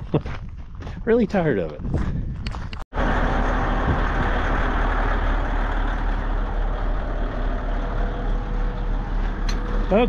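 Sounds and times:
diesel engine idling: 0:03.0 - 0:10.0.

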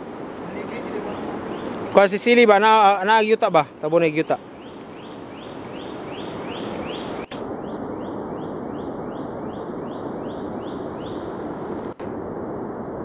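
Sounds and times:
steady hiss: 0:00.0 - 0:13.0
high chirping bird call: 0:01.1 - 0:02.0, 0:03.8 - 0:11.4.

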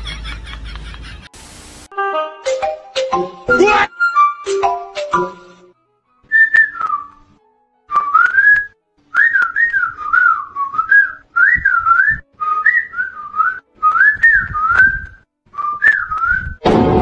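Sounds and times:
person whistling a tune: 0:06.3 - 0:07.2, 0:07.9 - 0:16.6.

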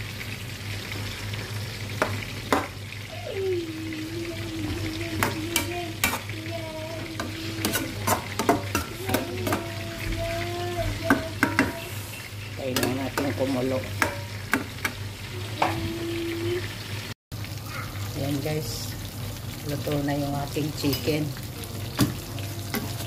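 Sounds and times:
frying sizzle: 0:00.0 - 0:23.0
metal spatula scraping a pan: 0:07.2 - 0:09.7.

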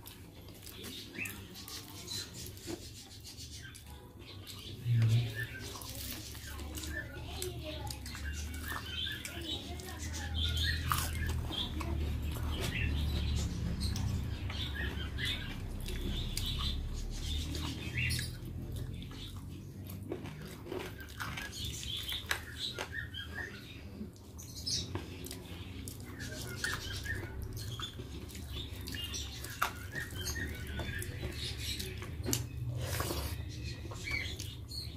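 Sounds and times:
chewing: 0:00.0 - 0:34.9.

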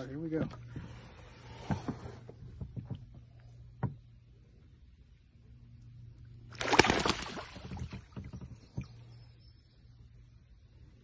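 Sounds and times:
water splashing and sloshing: 0:06.2 - 0:09.2.

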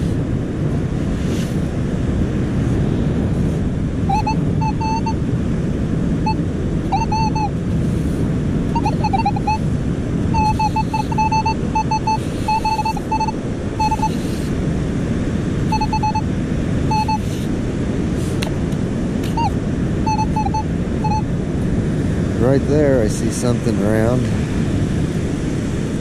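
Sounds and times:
surf: 0:00.0 - 0:26.0
wind noise on microphone: 0:00.0 - 0:26.0
metal detector beeps: 0:04.1 - 0:05.2, 0:06.2 - 0:07.6, 0:08.7 - 0:09.7, 0:10.3 - 0:14.5, 0:15.7 - 0:16.3, 0:16.9 - 0:17.4, 0:19.2 - 0:21.3.

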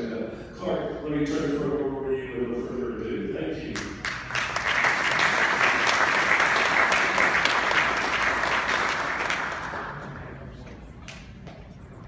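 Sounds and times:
audience applauding: 0:04.0 - 0:10.5.

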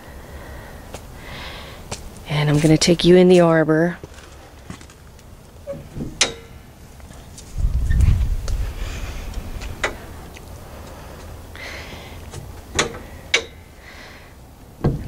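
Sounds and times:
low rumble: 0:07.4 - 0:11.6.

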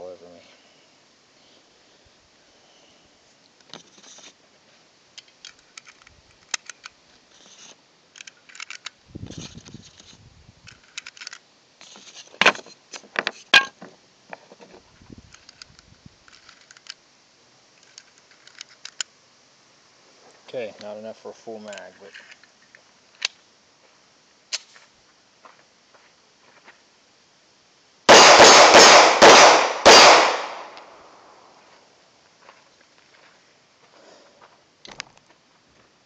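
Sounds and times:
cartridges clicking into magazine: 0:05.2 - 0:07.0, 0:08.1 - 0:09.0, 0:10.7 - 0:11.4, 0:17.8 - 0:19.1.

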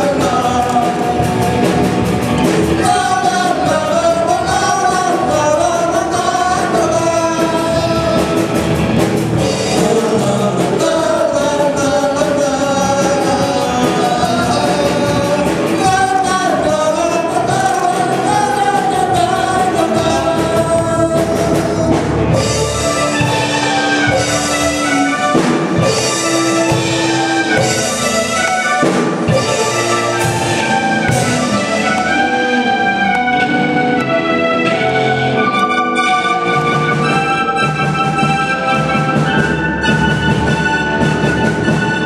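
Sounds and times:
group singing into microphones: 0:00.0 - 0:24.4
drum kit steady beat: 0:00.0 - 0:32.3
electric guitar: 0:00.0 - 0:42.0
keyboard: 0:00.0 - 0:42.0.

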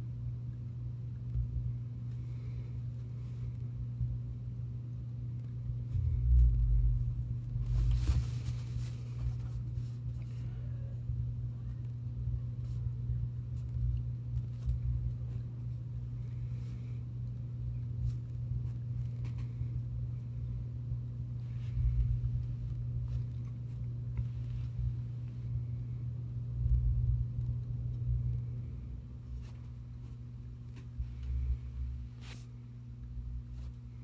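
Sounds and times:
steady low hum: 0:00.0 - 0:34.0
low rumbling: 0:05.7 - 0:12.4, 0:19.0 - 0:32.2.

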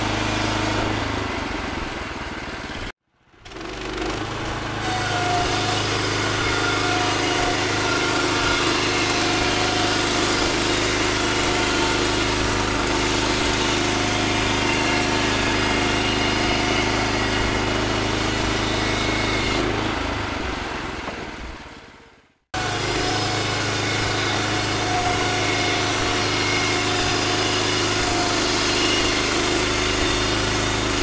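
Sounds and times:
band blade sawing wood: 0:03.5 - 0:19.9, 0:22.6 - 0:31.0.

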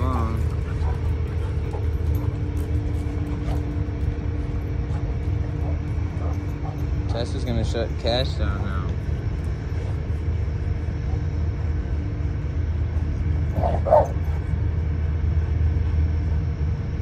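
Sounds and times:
steady low rumble: 0:00.0 - 0:17.0
dog barking: 0:13.5 - 0:14.4.

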